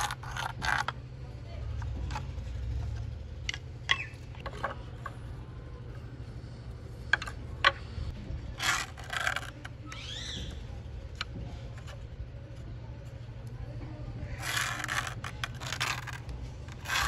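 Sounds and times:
scraping rustles: 7.1 - 10.0, 14.2 - 17.0
pen scraping on wood: 8.6 - 9.7, 14.4 - 17.0
rising and falling chirp: 9.9 - 10.8.

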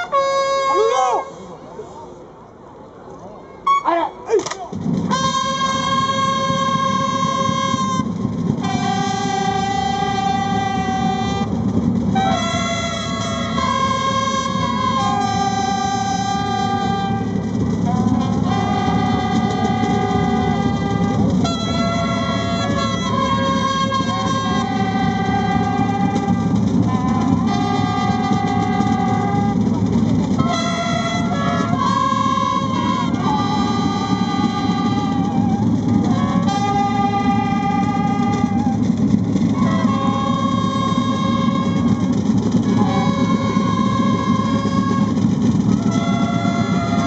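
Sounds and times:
brass military call: 0.0 - 1.5, 3.6 - 47.0.

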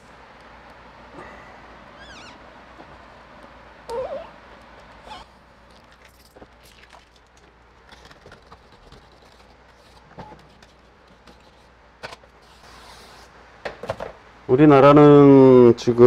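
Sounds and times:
low steady hum: 0.0 - 16.0
short squeak: 2.0 - 2.4.

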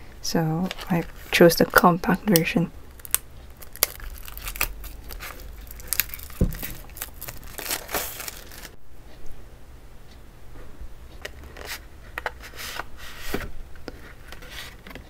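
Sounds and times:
plastic shrink-wrap crinkling: 2.9 - 8.8.

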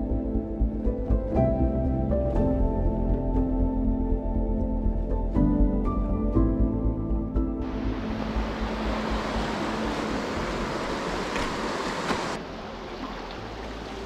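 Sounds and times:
soft music: 0.0 - 14.0
stream running over stones: 7.7 - 14.0.

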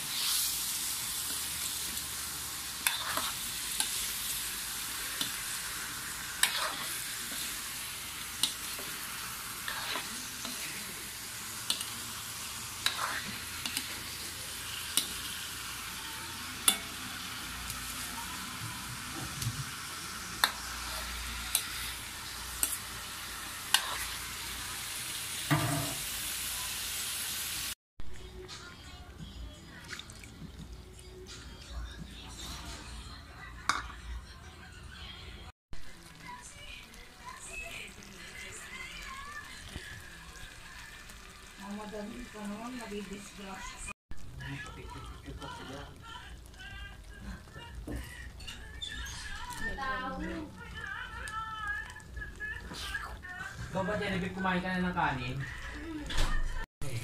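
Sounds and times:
tofu sizzling in a wok: 0.0 - 27.8, 35.8 - 55.9
metal spatula scraping a pan: 2.7 - 5.6, 6.3 - 10.9, 12.8 - 14.2, 23.6 - 24.3, 32.3 - 33.0.

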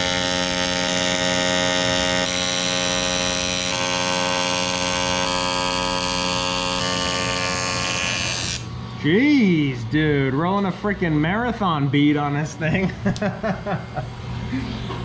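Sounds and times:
welding arc buzzing: 0.0 - 9.3.

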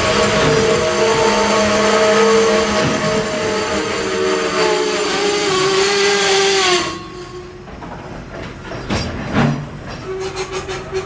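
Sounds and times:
high ringing wheel squeal: 0.0 - 7.6
freight train wheels on rails: 0.0 - 11.0
low train rumble: 0.0 - 11.0.

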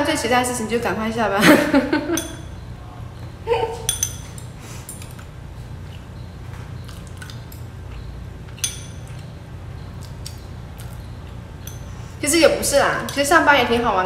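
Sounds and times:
steady low hum: 0.0 - 14.0
chopsticks clinking on ceramic bowl: 3.8 - 5.2.

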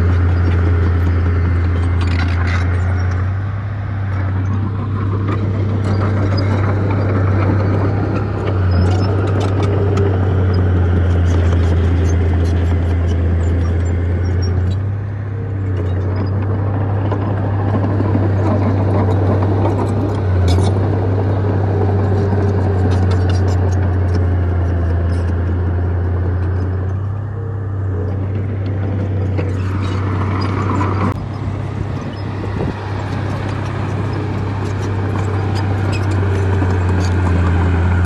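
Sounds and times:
heavy diesel engine droning: 0.0 - 38.0.

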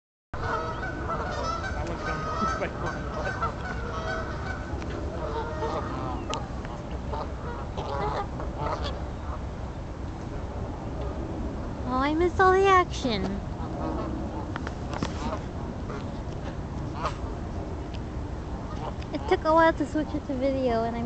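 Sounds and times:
geese honking: 0.4 - 9.4, 13.6 - 16.2, 16.8 - 17.3, 18.7 - 19.4.

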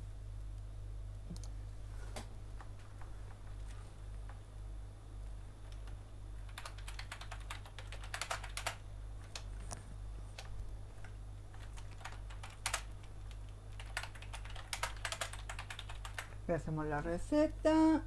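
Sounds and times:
steady low hum: 0.0 - 18.0
typing on computer keyboard: 5.7 - 9.5, 11.5 - 16.4.

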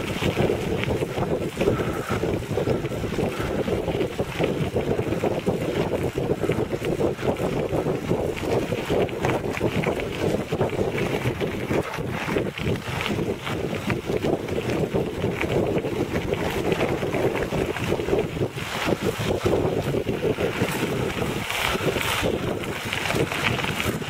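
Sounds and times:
tyres crackling over gravel: 0.0 - 24.0
wind on microphone: 0.0 - 24.0.

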